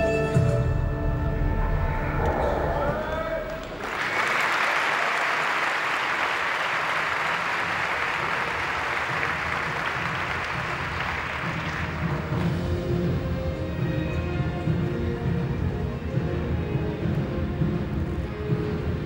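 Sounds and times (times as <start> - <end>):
large audience applauding: 2.8 - 12.5.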